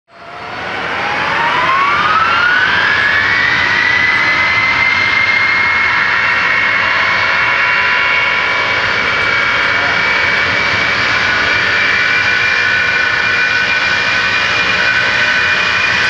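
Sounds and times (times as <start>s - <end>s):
jet engines spooling up: 0.1s - 16.0s.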